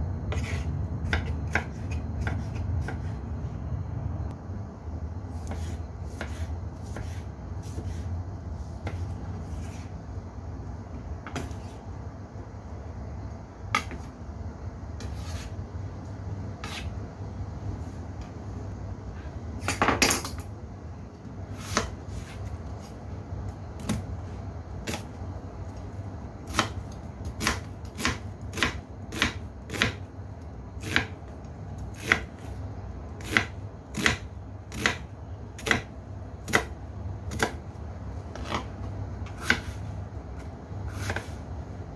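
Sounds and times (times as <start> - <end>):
steady low hum: 0.0 - 41.9
knife chopping on cutting board: 0.3 - 3.1, 5.4 - 8.1, 16.6 - 16.9, 26.5 - 26.8, 27.4 - 30.0, 30.8 - 31.2, 32.0 - 32.5, 33.2 - 35.0, 35.6 - 36.7, 38.3 - 38.7, 39.3 - 39.8, 40.9 - 41.4.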